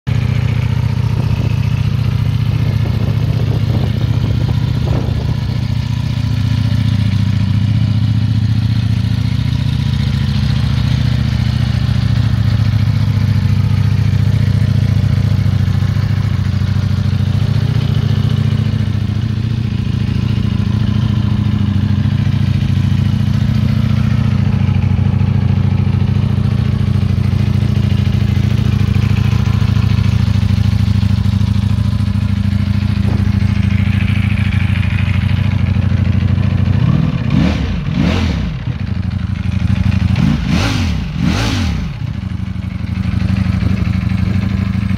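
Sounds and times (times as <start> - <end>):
motorcycle engine idling: 0.1 - 44.9.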